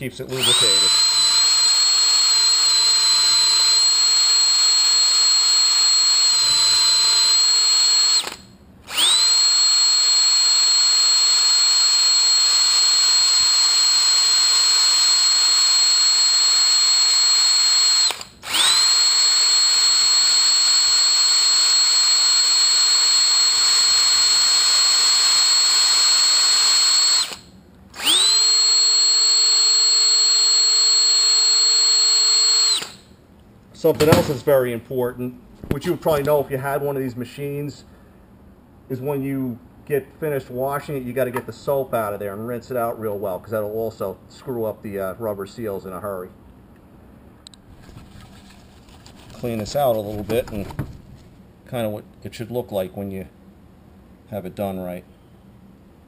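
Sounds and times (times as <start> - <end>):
cordless drill whining: 0.3 - 33.1.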